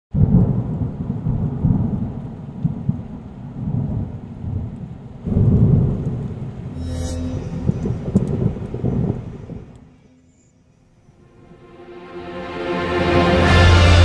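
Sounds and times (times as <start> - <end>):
thunder rumbling: 0.2 - 6.8, 7.4 - 10.0.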